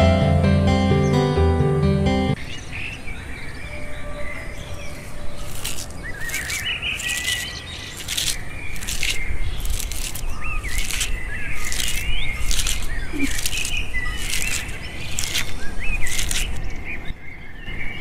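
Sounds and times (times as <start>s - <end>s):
small birds chirping: 2.4s - 18.0s
cabbage rustling by hand: 4.9s - 16.7s.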